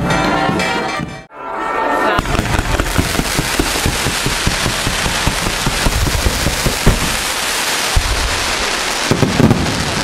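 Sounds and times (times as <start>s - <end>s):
fireworks bangs: 2.2s - 10.0s
fireworks hissing and crackling: 2.2s - 10.0s.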